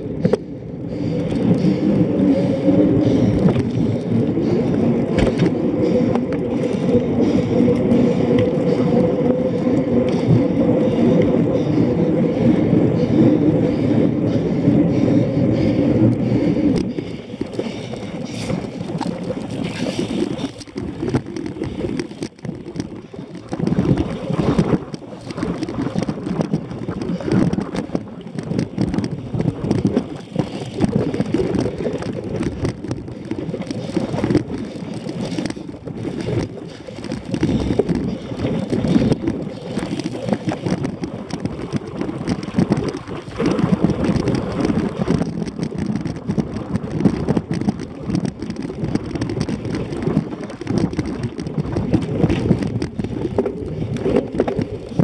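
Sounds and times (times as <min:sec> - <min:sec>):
wind on microphone: 0:00.0 - 0:55.0
bike rattling over bumpy grass: 0:16.7 - 0:55.0.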